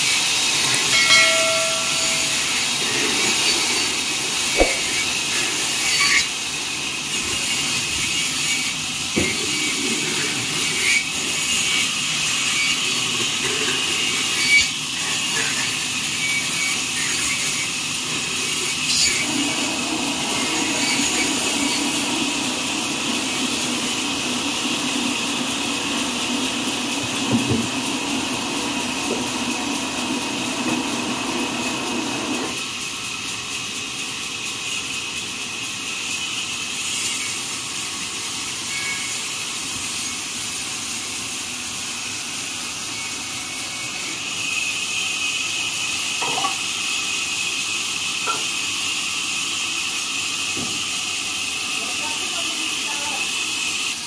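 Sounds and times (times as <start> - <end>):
saw blade cutting log: 0.0 - 32.6
band sawmill hissing: 0.0 - 54.0.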